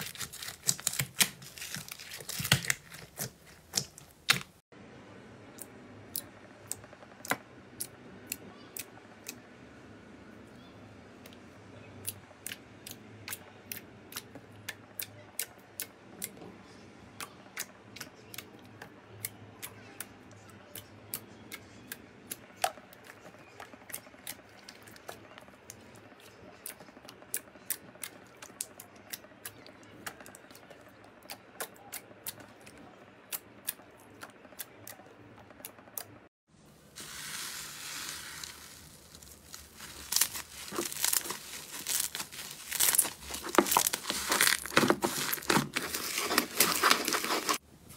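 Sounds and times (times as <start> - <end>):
slime crackling hiss stretching: 37.0 - 42.9.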